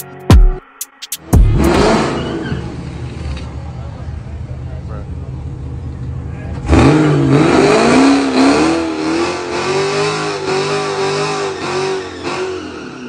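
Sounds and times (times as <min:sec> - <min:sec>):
car engine at full throttle: 0:01.2 - 0:13.0.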